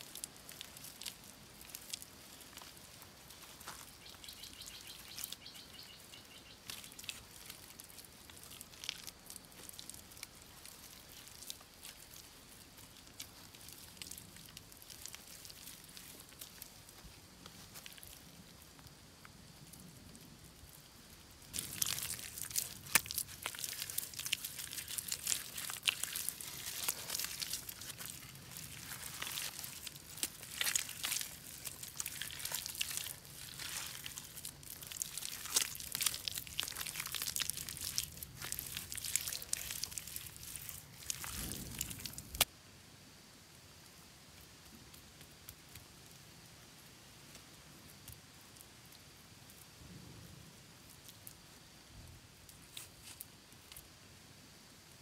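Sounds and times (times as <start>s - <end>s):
hands squelching wet mud: 0.0s - 18.3s, 21.5s - 42.5s.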